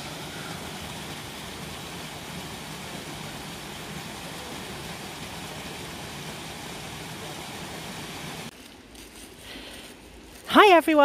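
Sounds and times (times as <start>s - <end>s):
brook rushing water: 0.0s - 8.5s.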